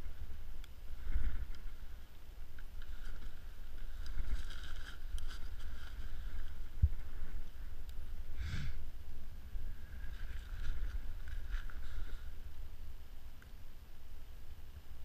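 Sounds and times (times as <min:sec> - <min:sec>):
fishing rod handling rustle: 0:00.0 - 0:08.2, 0:09.6 - 0:12.7
wind rumble on microphone: 0:00.0 - 0:13.1.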